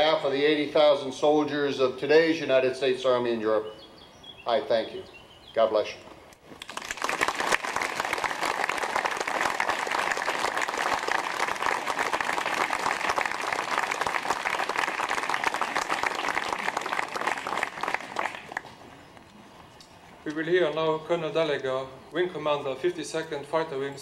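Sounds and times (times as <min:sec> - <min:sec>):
crowd applauding: 0:06.6 - 0:18.8.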